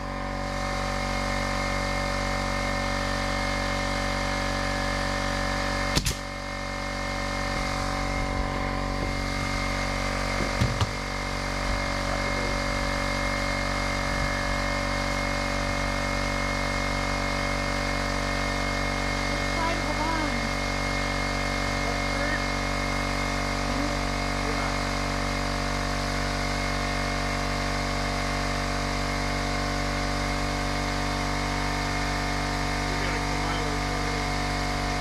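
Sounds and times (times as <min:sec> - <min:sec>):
air compressor humming: 0:00.0 - 0:35.0
nail gun firing: 0:05.9 - 0:06.4
lumber knocking: 0:10.3 - 0:11.0.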